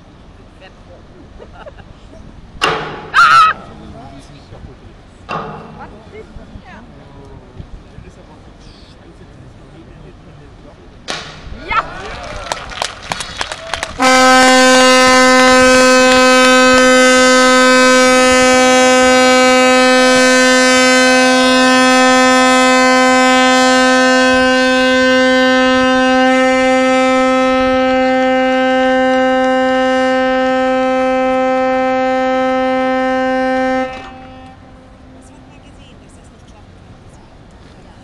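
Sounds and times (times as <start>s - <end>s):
ship's horn long blast: 13.8s - 35.9s.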